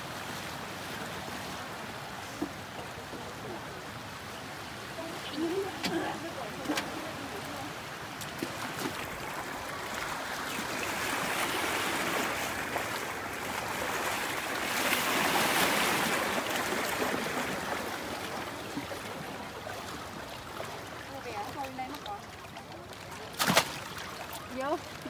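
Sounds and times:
boots splashing through water: 0:08.1 - 0:10.5, 0:20.5 - 0:25.0.

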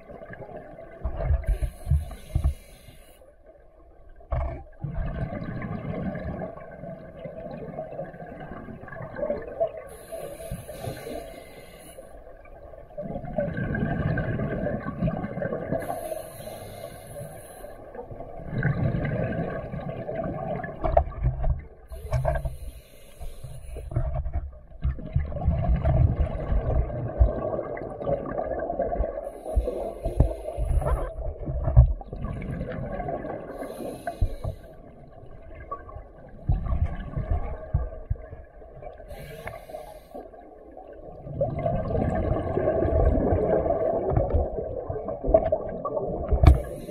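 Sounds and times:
exhaled bubbles rumbling: 0:00.0 - 0:02.4, 0:04.0 - 0:11.2, 0:12.4 - 0:16.0, 0:17.8 - 0:22.6, 0:23.8 - 0:39.6, 0:40.2 - 0:46.9
regulator hiss on inhale: 0:01.4 - 0:03.4, 0:09.9 - 0:12.4, 0:15.8 - 0:18.0, 0:21.9 - 0:24.0, 0:29.2 - 0:31.1, 0:33.5 - 0:35.0, 0:39.1 - 0:40.4, 0:46.5 - 0:46.9.

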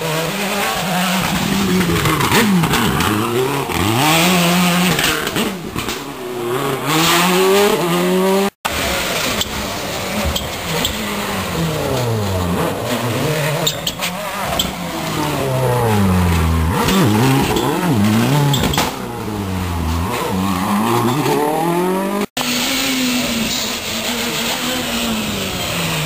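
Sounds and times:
rally car engine revving: 0:00.0 - 0:26.0
rally car engine steady pitch: 0:00.0 - 0:26.0.

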